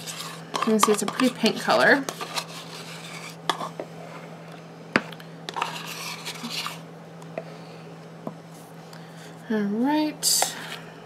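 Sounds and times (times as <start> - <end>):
spatula scraping plastic cup: 0.0 - 3.7, 5.5 - 6.8.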